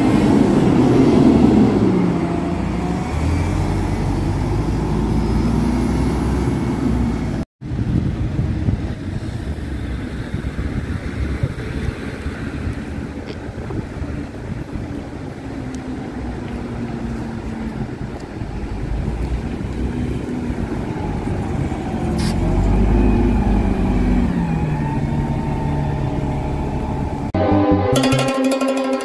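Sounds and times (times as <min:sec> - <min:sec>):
street traffic noise: 0:00.0 - 0:27.4
bus driving past: 0:00.0 - 0:27.9
music: 0:27.4 - 0:29.0.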